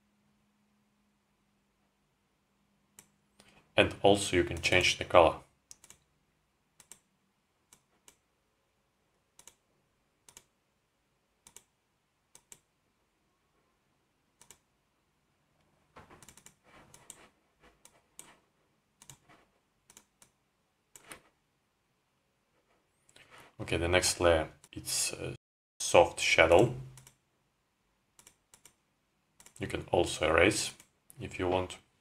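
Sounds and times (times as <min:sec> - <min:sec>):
computer mouse clicks: 0:02.9 - 0:03.6, 0:05.7 - 0:06.1, 0:06.8 - 0:07.1, 0:07.7 - 0:08.2, 0:09.3 - 0:09.6, 0:10.2 - 0:10.6, 0:11.4 - 0:12.7, 0:14.4 - 0:14.7, 0:16.0 - 0:18.4, 0:19.0 - 0:21.4, 0:26.9 - 0:27.2, 0:28.2 - 0:28.8, 0:29.4 - 0:29.6.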